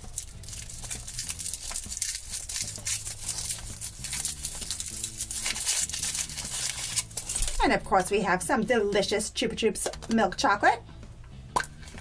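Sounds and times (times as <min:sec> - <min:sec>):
foil wrapper crinkling: 0:00.0 - 0:07.7.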